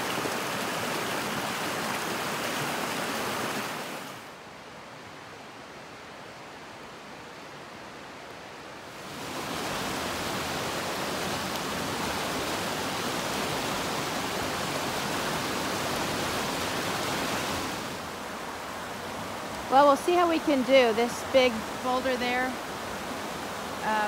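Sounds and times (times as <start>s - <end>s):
creek water rushing: 0.0s - 24.0s.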